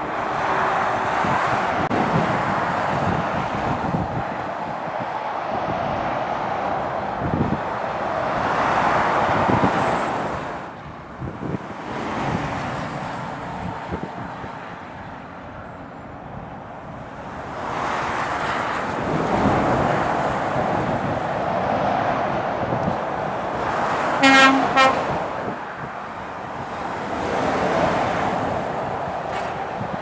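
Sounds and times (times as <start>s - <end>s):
motorway traffic passing: 0.0s - 30.0s
tyre and road noise: 0.0s - 30.0s.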